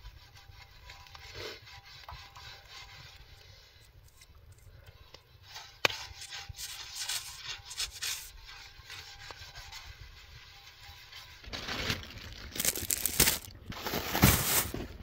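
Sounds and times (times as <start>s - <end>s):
scraping and rubbing: 0.0s - 15.0s.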